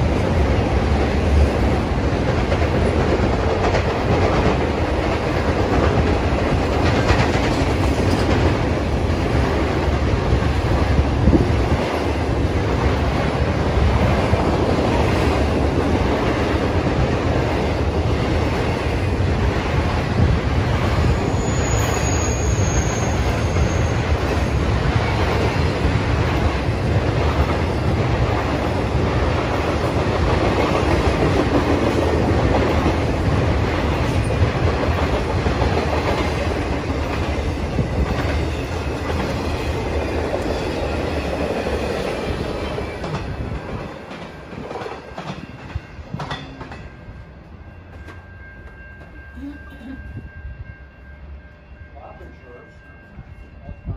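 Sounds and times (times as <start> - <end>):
freight train wheels on rails: 0.0 - 53.9
high squeal: 21.0 - 24.2.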